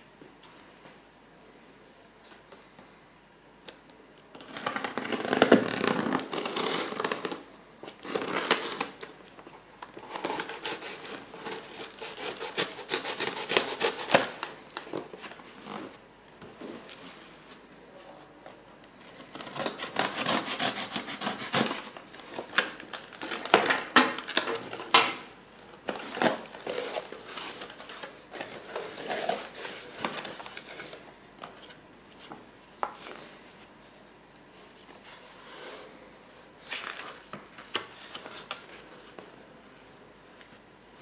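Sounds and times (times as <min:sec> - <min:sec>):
packing tape tearing: 0:04.4 - 0:09.1, 0:09.9 - 0:15.0, 0:19.4 - 0:25.2, 0:25.8 - 0:31.0.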